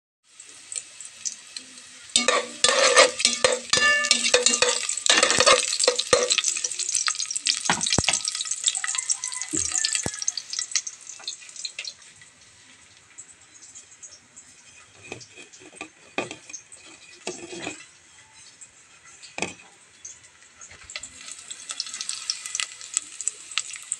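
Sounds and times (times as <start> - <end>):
garlic and onion sizzling in oil: 0.2 - 23.9
utensil scraping a metal pot: 2.1 - 7.0, 14.5 - 18.0.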